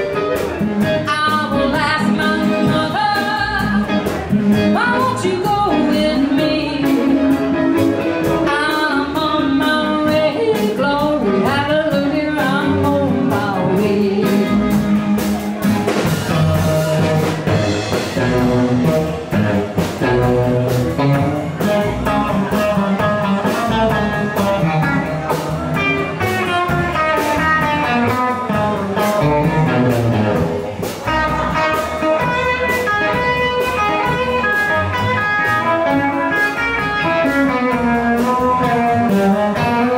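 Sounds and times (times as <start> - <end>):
drum kit beat: 0.0 - 39.9
electric and acoustic guitars: 0.0 - 39.9
person singing: 0.8 - 18.8.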